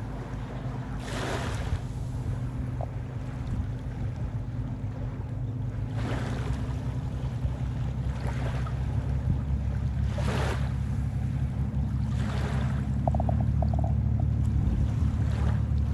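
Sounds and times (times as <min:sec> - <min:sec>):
steady low hum: 0:00.0 - 0:15.9
small waves washing on sand: 0:01.0 - 0:02.4, 0:10.0 - 0:11.0.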